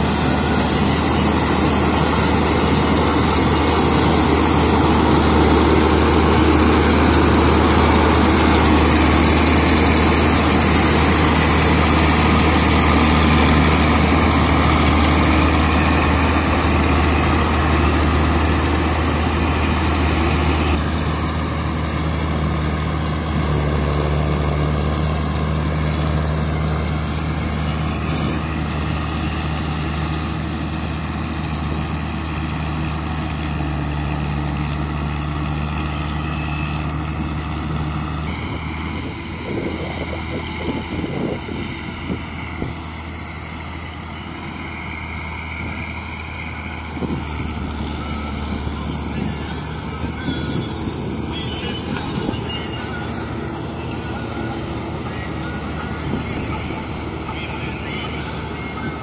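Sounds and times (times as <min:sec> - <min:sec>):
combine harvester engine droning: 0:00.0 - 0:59.0.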